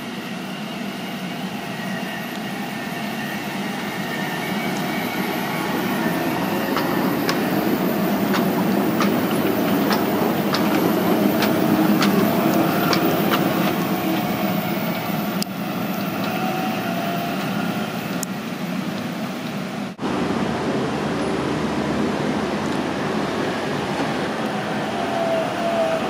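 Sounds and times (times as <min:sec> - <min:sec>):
tram rumbling past: 0:00.0 - 0:26.0.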